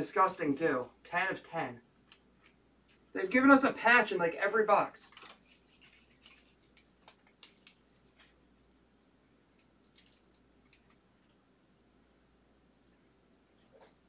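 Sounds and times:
trading cards rustling: 0:05.0 - 0:08.8, 0:09.5 - 0:11.4.

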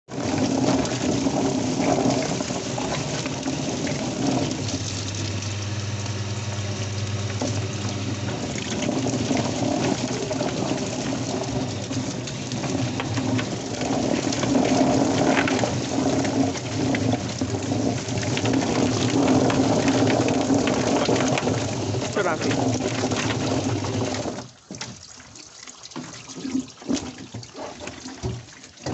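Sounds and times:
splashing water: 0:00.1 - 0:28.9
machine running hum: 0:00.2 - 0:24.3
low steady hum: 0:02.8 - 0:14.4
small knocks of tumbling drum: 0:08.2 - 0:25.1.

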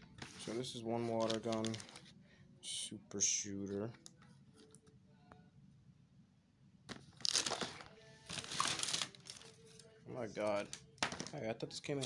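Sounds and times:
plastic bag crinkling: 0:01.1 - 0:02.0, 0:07.2 - 0:09.6.

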